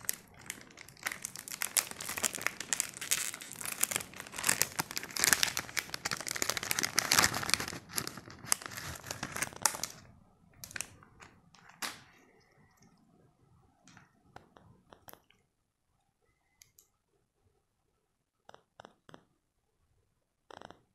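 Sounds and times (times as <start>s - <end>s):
foil wrapper crinkling and tearing: 0.0s - 12.2s.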